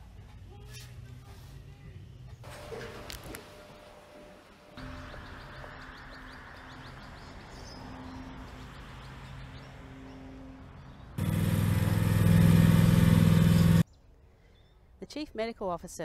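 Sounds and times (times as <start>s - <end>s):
birds chirping: 4.6s - 14.9s
lawn mower engine running: 11.2s - 13.8s.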